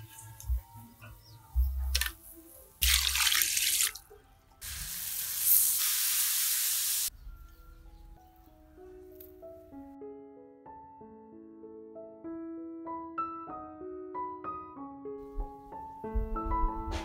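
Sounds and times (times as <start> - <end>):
noodles sizzling in a wok: 4.6 - 7.1.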